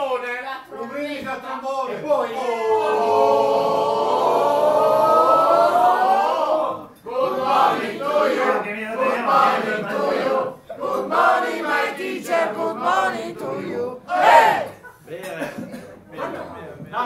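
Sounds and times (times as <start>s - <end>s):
group rising shout: 2.4s - 7.8s, 12.2s - 14.8s
people chanting in unison: 2.4s - 14.9s.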